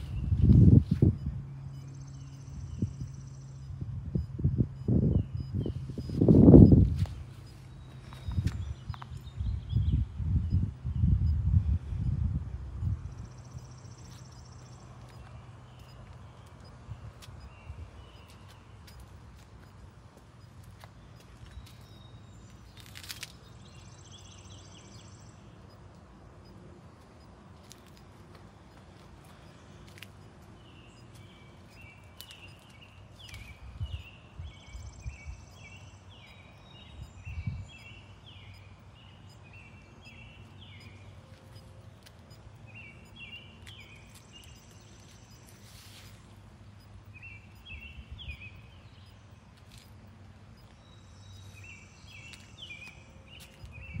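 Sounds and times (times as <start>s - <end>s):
songbird singing: 0.0s - 54.0s.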